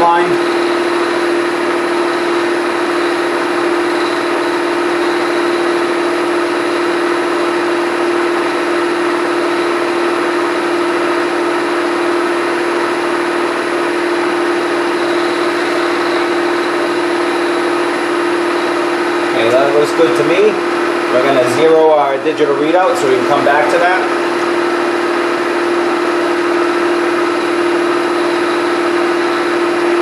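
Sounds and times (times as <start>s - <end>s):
milling machine spindle hum: 0.0s - 30.0s.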